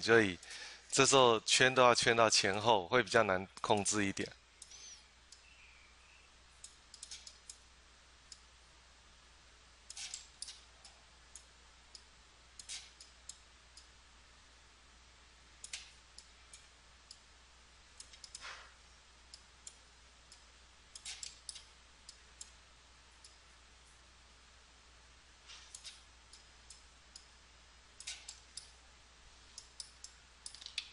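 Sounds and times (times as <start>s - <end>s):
faint low hum: 0.0s - 30.9s
computer mouse clicking: 18.0s - 18.5s.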